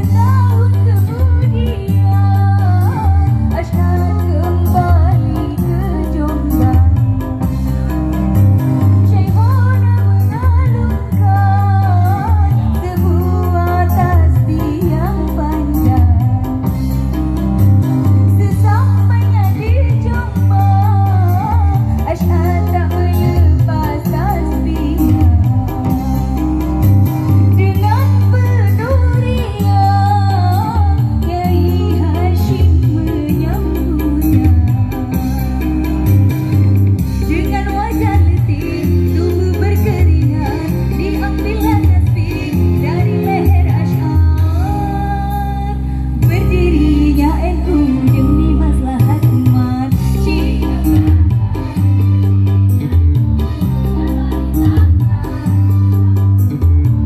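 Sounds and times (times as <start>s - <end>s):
backing music with bass: 0.0s - 57.0s.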